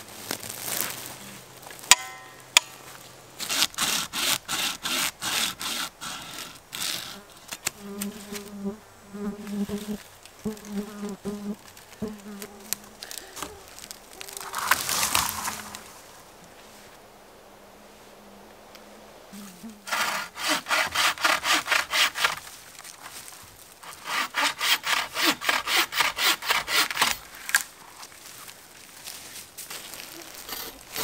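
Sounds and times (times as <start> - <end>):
rustling: 0.0 - 4.4, 6.1 - 31.0
saw cutting wood: 3.4 - 7.6, 19.8 - 22.5, 23.8 - 27.2, 30.4 - 31.0
flying insect buzzing: 7.8 - 16.2, 18.1 - 20.2.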